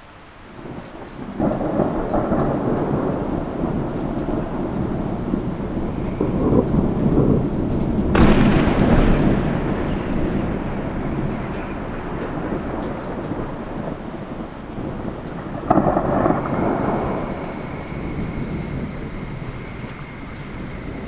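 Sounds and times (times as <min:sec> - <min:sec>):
thunder rumbling: 0:00.0 - 0:21.0
sharp thunder crack: 0:00.6 - 0:21.0.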